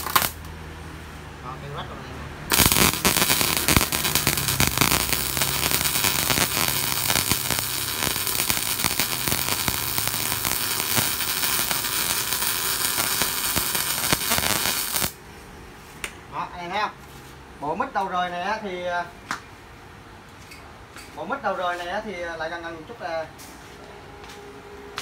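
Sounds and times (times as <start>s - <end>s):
welding arc sizzling crackle: 0.0s - 0.6s, 2.5s - 15.2s.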